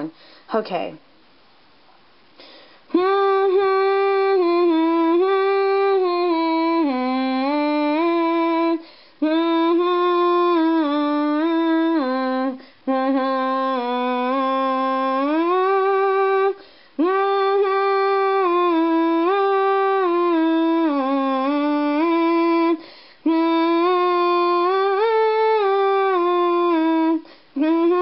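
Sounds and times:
person humming a tune: 2.9 - 28.0.

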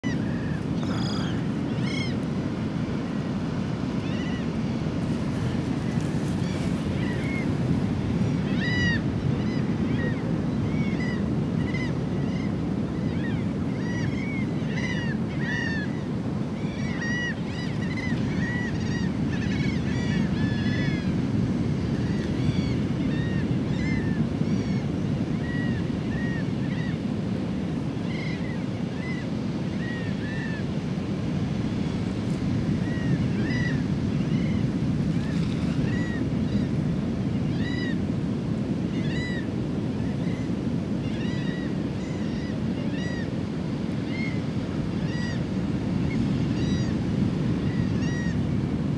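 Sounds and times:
low wind rumble: 0.0 - 26.7.

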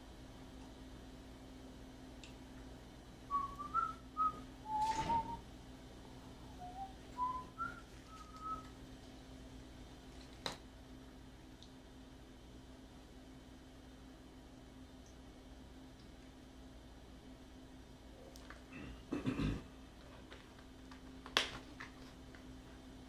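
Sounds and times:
person whistling a tune: 3.3 - 5.4, 6.6 - 8.7.

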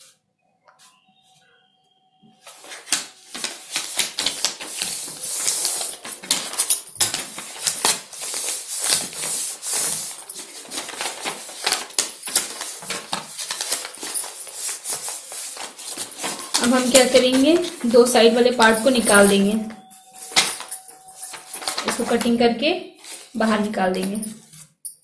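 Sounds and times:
stiff paper rustling and crackling: 2.4 - 19.4, 20.1 - 22.4.

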